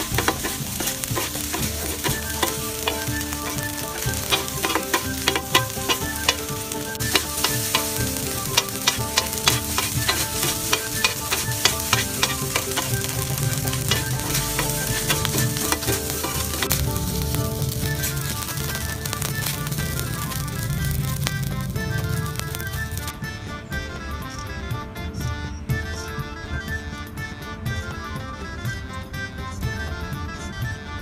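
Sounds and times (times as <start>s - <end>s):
spatulas scraping and clacking: 0.0s - 16.8s
fried rice sizzling on a griddle: 0.0s - 23.1s.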